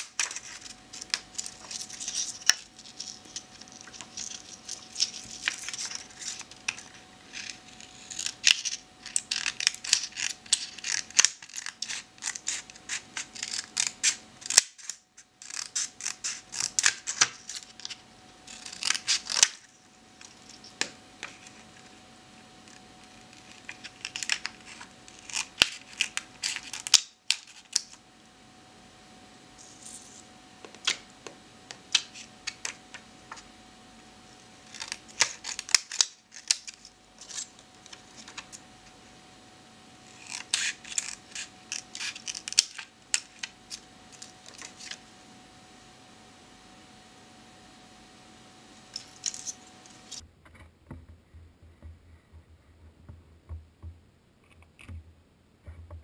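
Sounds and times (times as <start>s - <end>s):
scissors snipping paper: 0.0s - 21.6s, 22.7s - 28.0s, 34.6s - 38.6s, 40.1s - 45.0s.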